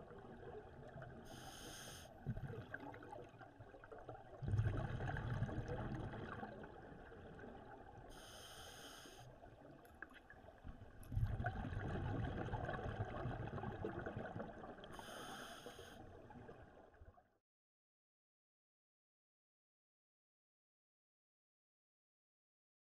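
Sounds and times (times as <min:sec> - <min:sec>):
regulator hiss on in-breath: 0:01.3 - 0:02.2, 0:08.1 - 0:09.3, 0:14.9 - 0:16.0.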